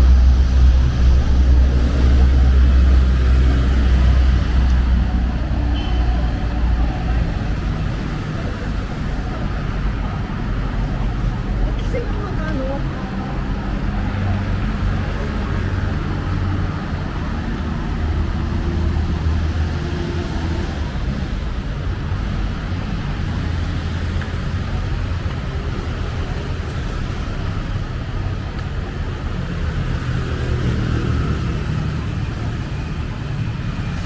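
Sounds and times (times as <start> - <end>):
road traffic: 0.0 - 34.0.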